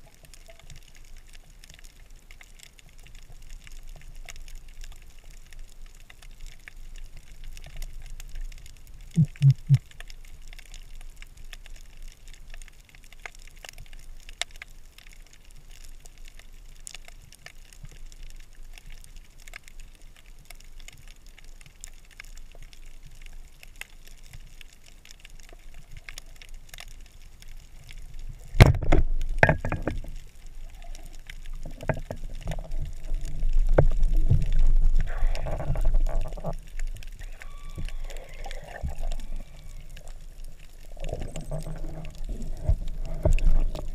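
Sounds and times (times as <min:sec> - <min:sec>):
faint crackling clicks: 0:00.0 - 0:43.9
underwater rumbling and swishing: 0:00.0 - 0:43.9
underwater hiss: 0:34.8 - 0:36.0.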